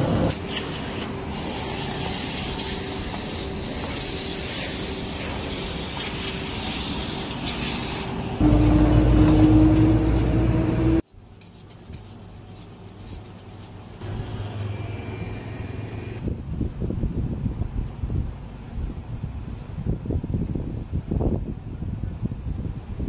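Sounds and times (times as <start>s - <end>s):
knife scraping on honing steel: 11.1s - 14.0s.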